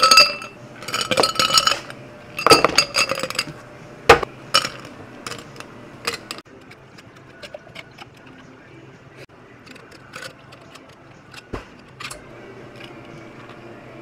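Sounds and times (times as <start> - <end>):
ice cubes clattering into glasses: 0.0 - 1.8.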